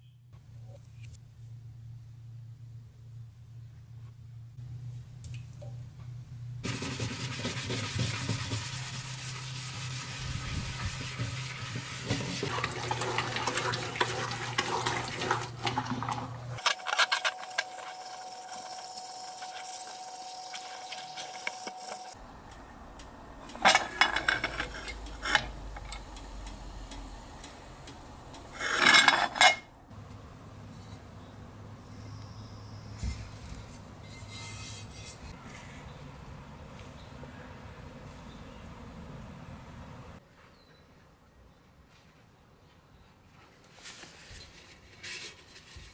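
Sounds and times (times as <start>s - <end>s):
steel wool scrubbing kettle: 6.6s - 22.2s
running tap water splashing: 6.8s - 16.3s.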